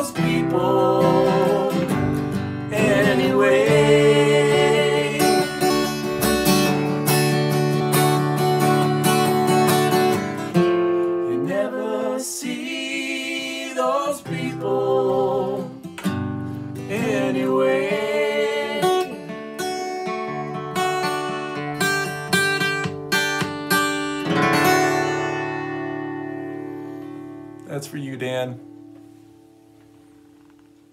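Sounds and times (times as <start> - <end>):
man and woman singing together: 0.0 - 6.0, 11.3 - 15.9, 16.8 - 19.4
acoustic guitar picked: 0.0 - 30.9.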